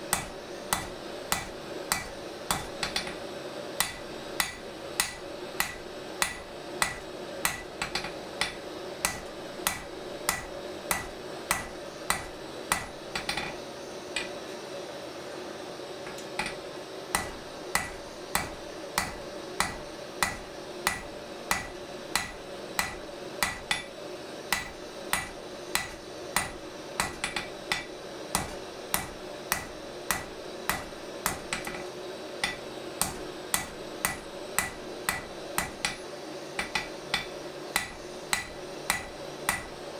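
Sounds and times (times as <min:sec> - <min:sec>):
steady hum: 0:00.0 - 0:39.9
hammer striking metal on anvil: 0:00.1 - 0:13.6, 0:16.1 - 0:23.9, 0:24.5 - 0:36.0, 0:36.6 - 0:39.8.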